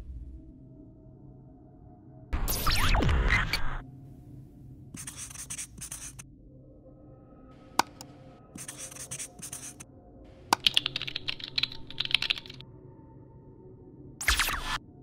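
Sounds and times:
marker pen scratching on whiteboard: 0:05.0 - 0:06.2, 0:07.8 - 0:08.0, 0:08.6 - 0:09.8
computer keyboard typing clicks: 0:07.8 - 0:08.1, 0:10.6 - 0:12.6.

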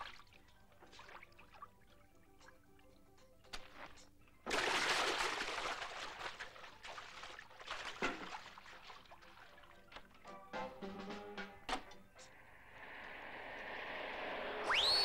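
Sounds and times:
water sloshing and trickling: 0:00.0 - 0:10.3
person splashing into water: 0:04.5 - 0:09.4.

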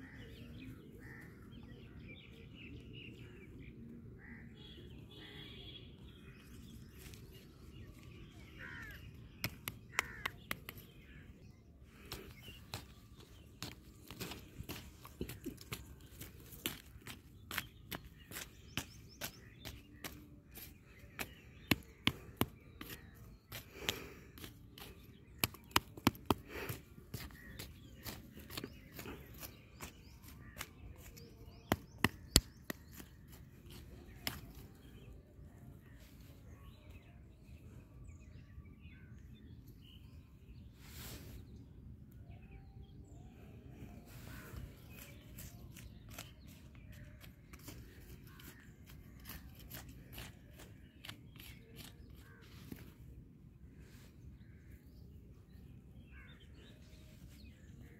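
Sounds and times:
hoe chopping and scraping soil: 0:12.1 - 0:34.8, 0:44.9 - 0:52.9.

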